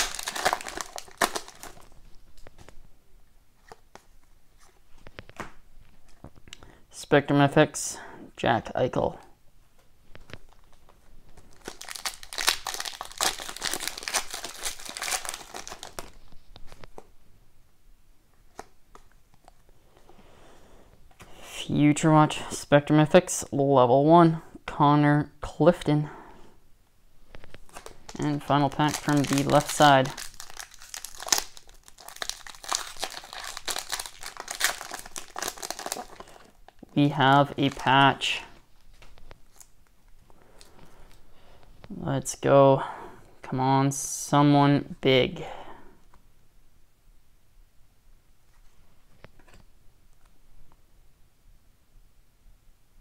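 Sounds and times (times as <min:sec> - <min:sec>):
foil wrapper tearing and crinkling: 0:00.0 - 0:02.0, 0:10.5 - 0:16.3, 0:27.7 - 0:36.9.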